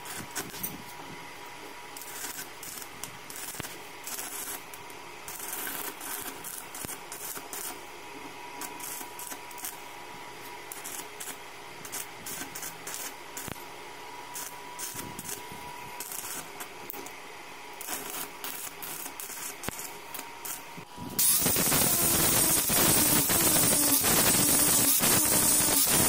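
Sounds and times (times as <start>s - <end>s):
welding arc crackling: 0.0s - 0.8s, 1.9s - 8.0s, 8.6s - 13.7s, 14.3s - 26.0s
angle grinder grinding steel: 17.8s - 26.0s.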